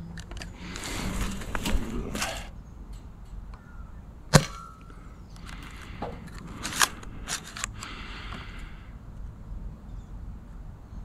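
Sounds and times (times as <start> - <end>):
toy pistol shot crack: 4.3 - 4.8.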